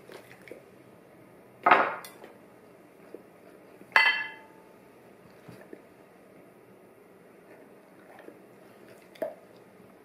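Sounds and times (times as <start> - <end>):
drinking glass clinking: 4.0 - 4.5.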